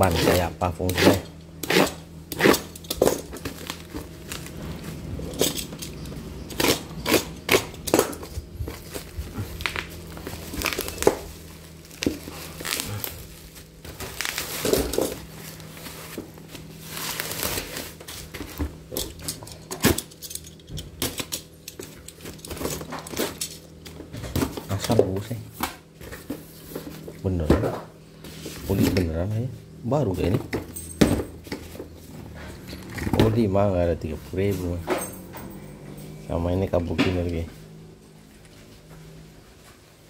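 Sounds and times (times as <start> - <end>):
plastic wrapping crinkling and tearing: 3.0 - 4.8, 8.6 - 18.6.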